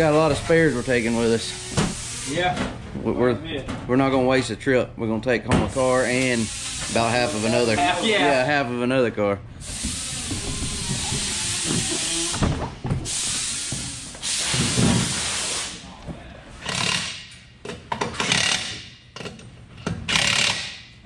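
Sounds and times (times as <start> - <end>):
steady loud hiss: 0.0 - 2.7, 5.7 - 8.2, 9.6 - 15.9
cordless drill driving bolts: 16.6 - 17.2, 20.1 - 20.7.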